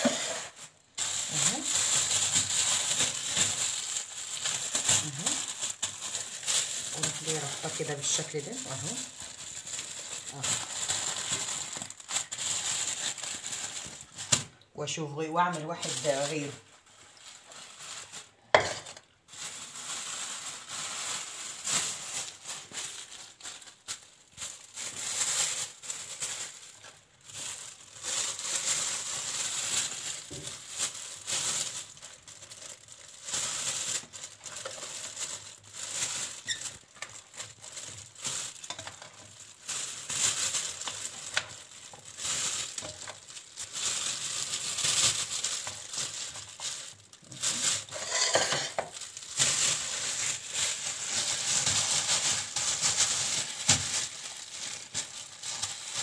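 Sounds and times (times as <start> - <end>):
plastic bag crinkling: 0.0 - 56.0.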